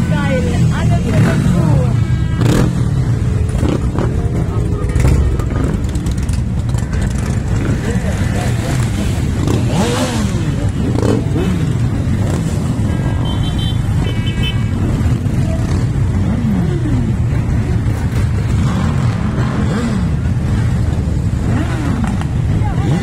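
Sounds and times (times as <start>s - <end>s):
motorcycle engines revving: 0.0s - 23.0s
horn tooting: 1.1s - 3.8s, 12.3s - 15.8s.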